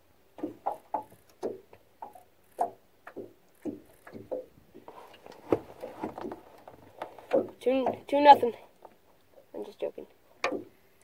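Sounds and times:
waves knocking on boat hull: 0.4s - 8.5s.

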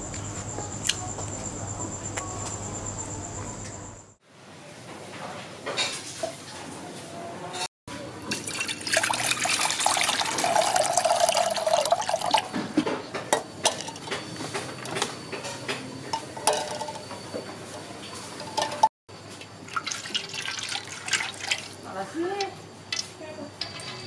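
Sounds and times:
water pouring into metal pot: 8.3s - 12.5s, 19.4s - 21.9s
clinks against metal pot: 8.3s - 17.4s, 18.4s - 19.5s, 22.4s - 24.0s.

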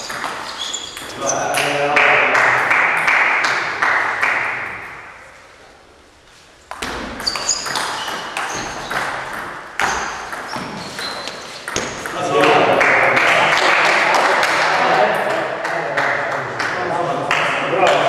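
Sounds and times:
table tennis ball pinging: 0.0s - 1.2s, 6.7s - 12.2s.

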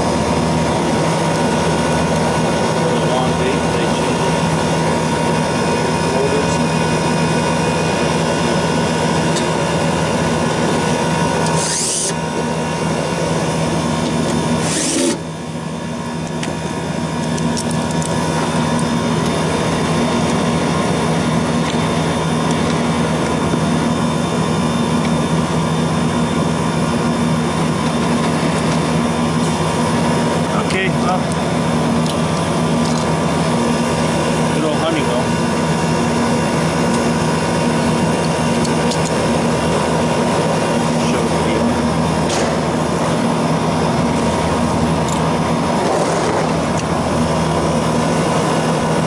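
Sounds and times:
refrigeration unit humming: 0.0s - 49.0s
cordless drill whirring: 11.4s - 12.4s, 14.0s - 15.4s.

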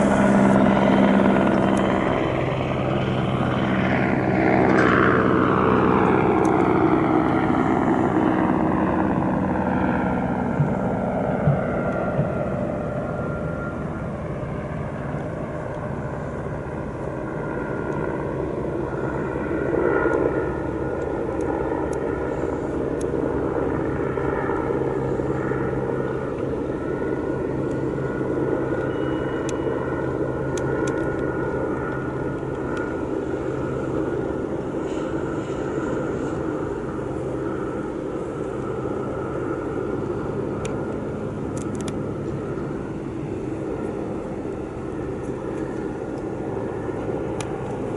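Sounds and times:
helicopter drone flying past: 0.0s - 47.9s.

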